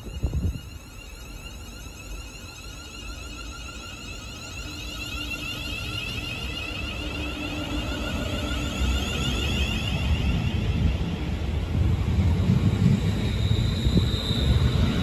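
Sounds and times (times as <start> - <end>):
electric train motors whining: 0.0 - 15.0.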